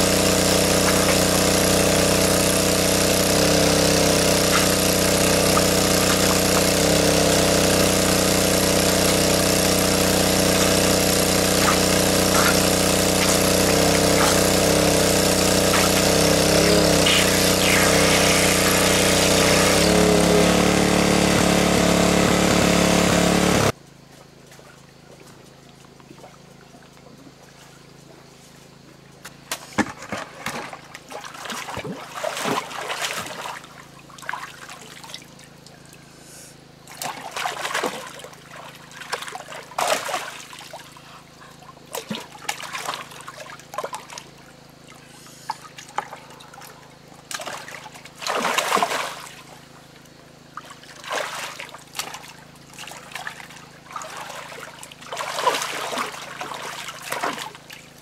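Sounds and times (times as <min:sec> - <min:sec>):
hands splashing in water: 0:50.7 - 0:57.8.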